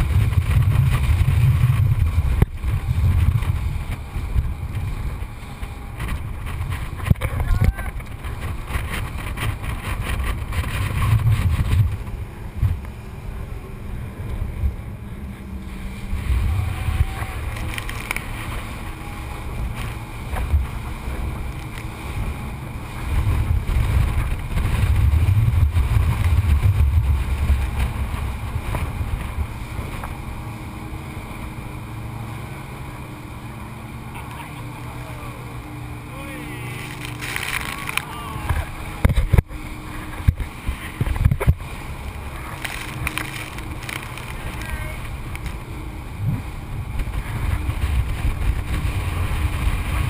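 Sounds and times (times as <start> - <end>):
low boat engine rumble: 0.0 - 50.0
wind and water spray rushing: 0.0 - 50.0.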